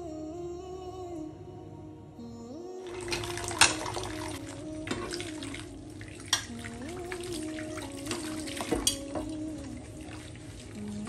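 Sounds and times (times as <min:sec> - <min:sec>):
dishes clinking: 0:06.2 - 0:06.7, 0:08.1 - 0:09.4
tap water running into sink: 0:06.2 - 0:09.4.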